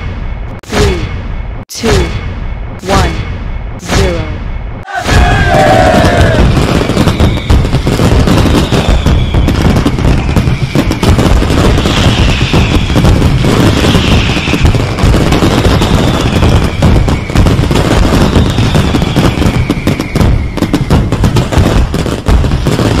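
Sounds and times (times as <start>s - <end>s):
fireworks bangs and crackles: 0.0s - 23.0s.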